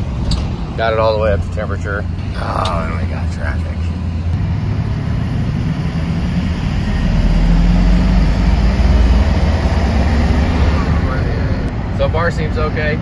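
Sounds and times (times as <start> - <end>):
road noise: 0.0 - 13.0
pickup truck engine humming: 1.3 - 11.7.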